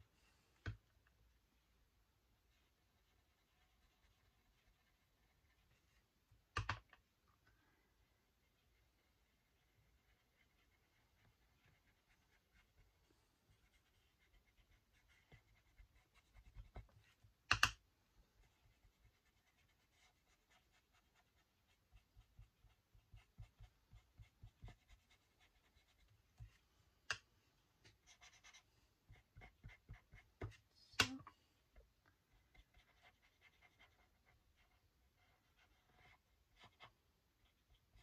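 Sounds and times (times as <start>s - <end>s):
paintbrush scratching on paper: 2.5s - 6.2s, 8.2s - 17.4s, 18.4s - 26.7s, 27.8s - 30.7s, 32.3s - 38.0s.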